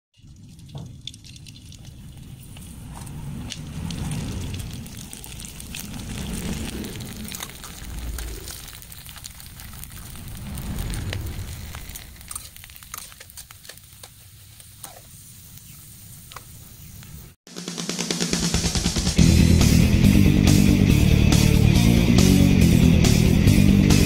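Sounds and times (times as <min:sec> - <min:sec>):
crackers sizzling in hot oil: 0:00.2 - 0:17.4
low rumble: 0:00.3 - 0:12.8.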